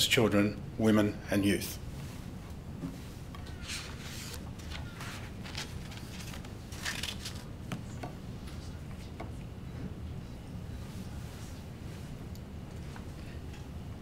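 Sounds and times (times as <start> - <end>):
clothing rustling: 1.9 - 7.5.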